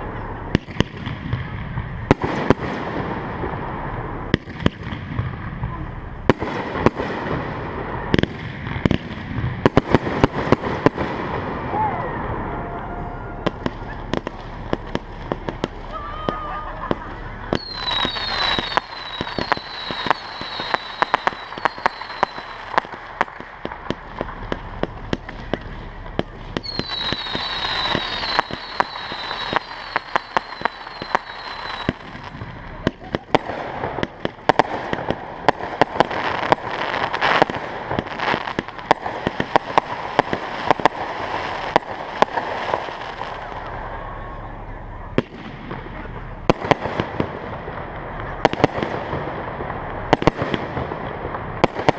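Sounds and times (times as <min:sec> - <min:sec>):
fireworks popping and crackling: 0:00.0 - 0:51.9
firework whistles: 0:09.6 - 0:47.2.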